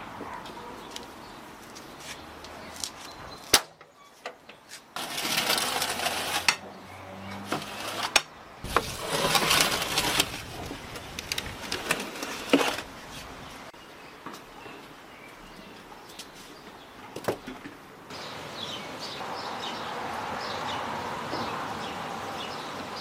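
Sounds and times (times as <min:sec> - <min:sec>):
metal tray scraping: 0:05.0 - 0:10.8, 0:11.6 - 0:12.9.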